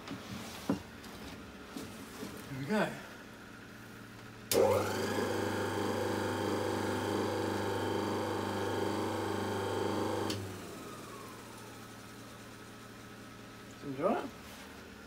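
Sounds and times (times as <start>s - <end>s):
motor switch click: 4.5s - 4.9s
electric motor humming with whine: 4.5s - 12.0s.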